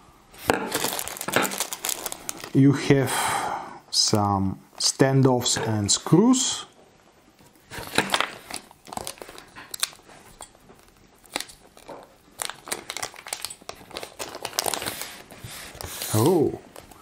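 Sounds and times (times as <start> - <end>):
plastic bag crinkling: 0.4 - 2.6, 7.6 - 17.0.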